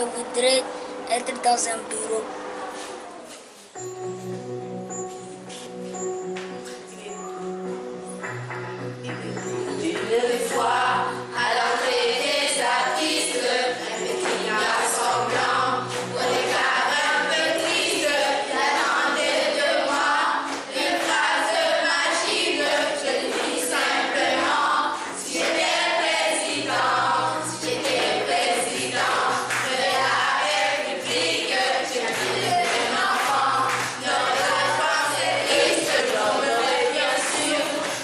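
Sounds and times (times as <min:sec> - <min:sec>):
children singing in chorus: 0:10.1 - 0:38.0.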